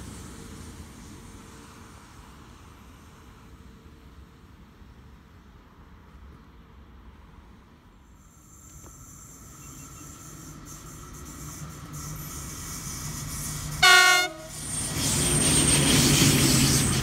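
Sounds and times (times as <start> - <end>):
locomotive rumble: 8.7 - 17.0
short horn blast: 13.8 - 14.5.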